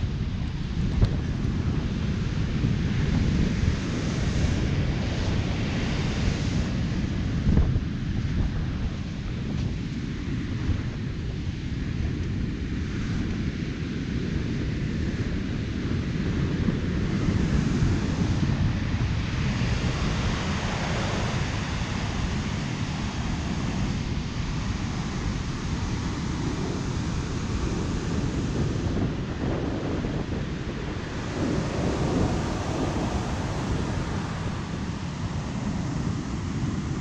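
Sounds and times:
wind buffeting microphone: 0.0 - 37.0
ocean surf hissing: 19.4 - 37.0.

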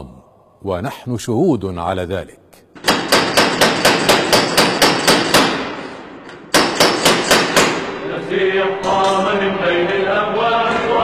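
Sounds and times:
door knocker banging on wooden door: 2.8 - 5.6, 6.6 - 7.8
voices chanting: 8.0 - 11.0.

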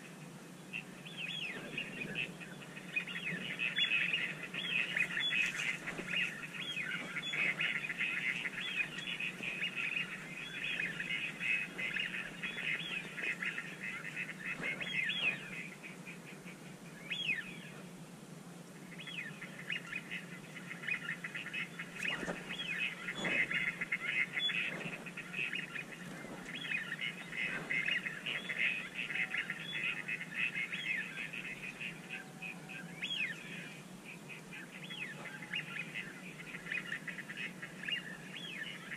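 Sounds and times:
small birds chirping: 0.0 - 18.0, 18.6 - 38.9.

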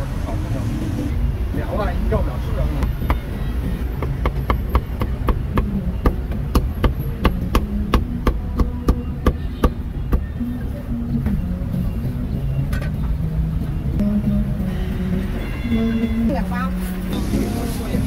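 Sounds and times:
cleaver chopping on wooden block: 4.0 - 10.3.

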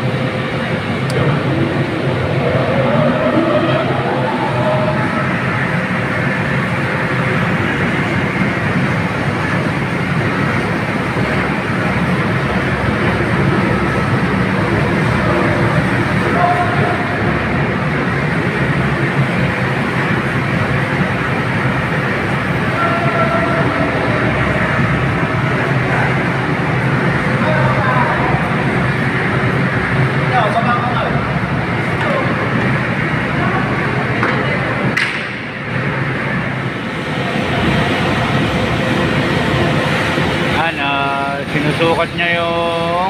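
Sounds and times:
low hum: 0.0 - 43.0
ventilation fan blower running: 0.0 - 43.0.

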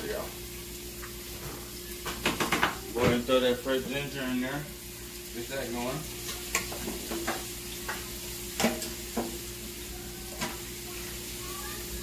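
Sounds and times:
vegetables sizzling in a pan: 0.0 - 12.0
utensil knocking against pan: 2.1 - 2.8.

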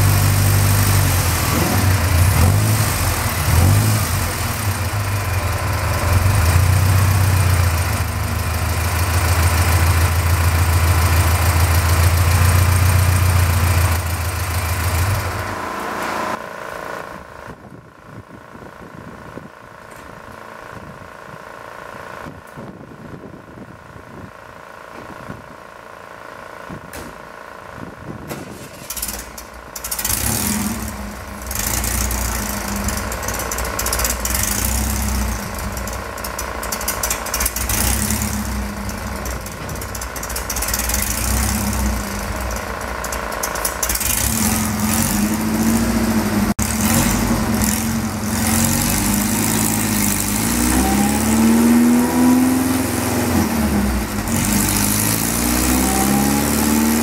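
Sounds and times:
supercharged engine revving: 0.0 - 17.2, 28.9 - 57.0.

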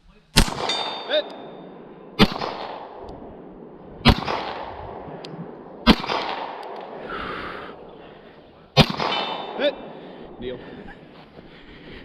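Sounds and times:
pistol shots with echo: 0.4 - 8.1, 8.7 - 10.4.

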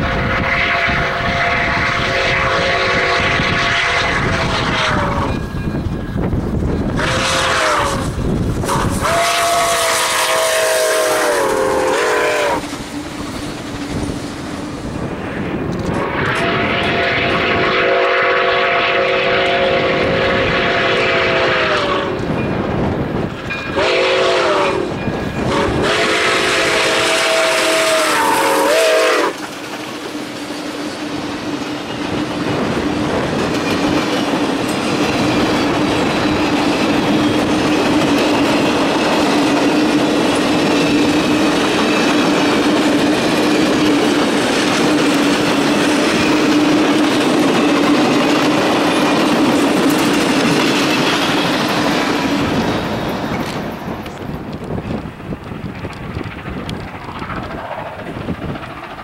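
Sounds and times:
steam locomotive chime whistle: 0.0 - 6.2, 6.8 - 12.8, 15.9 - 22.7, 23.4 - 29.5
wind rumbling on microphone: 0.0 - 29.6, 31.0 - 59.0.

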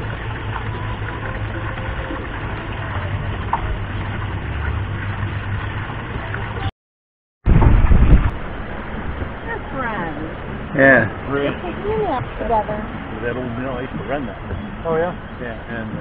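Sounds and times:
low mechanical hum: 0.0 - 6.7
loud rumble: 7.4 - 14.5.

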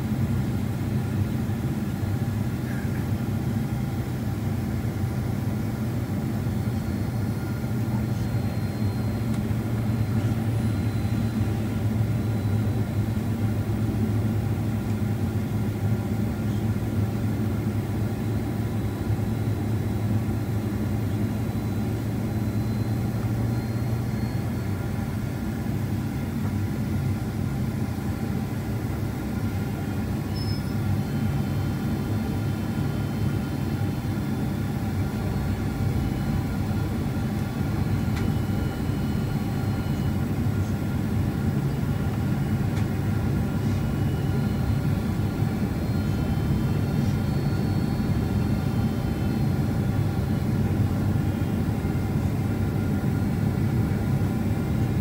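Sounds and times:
jet engines droning: 0.0 - 55.0.

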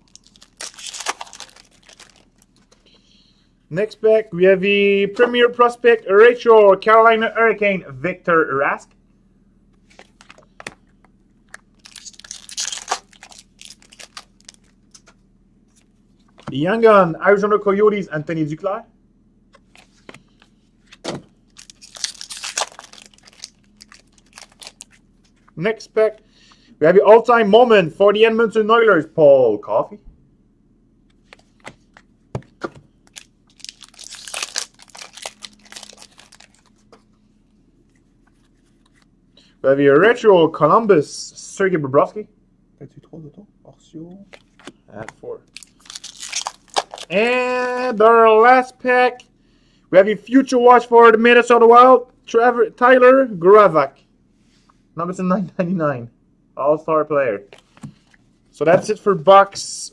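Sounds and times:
wrapper tearing and crinkling: 0.0 - 2.8, 11.8 - 15.0, 21.5 - 25.0, 33.0 - 36.8, 45.5 - 47.2.

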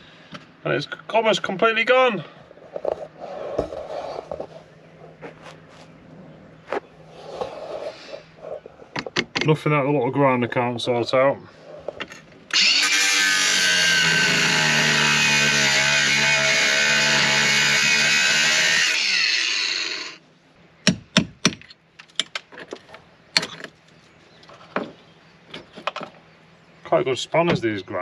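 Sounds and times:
angle grinder cutting metal: 12.5 - 20.2.

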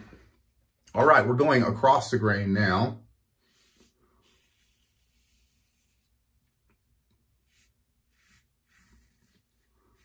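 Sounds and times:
razor scratching through stubble: 7.5 - 10.0.

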